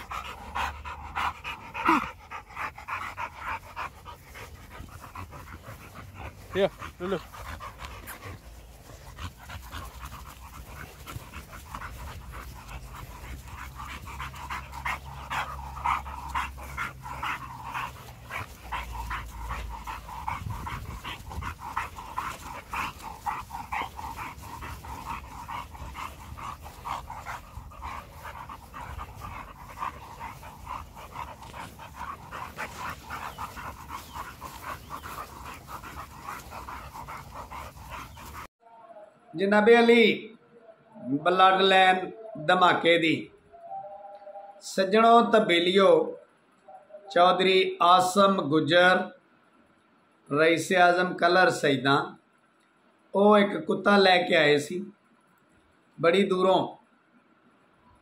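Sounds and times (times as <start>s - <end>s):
dog panting: 0.0s - 38.5s.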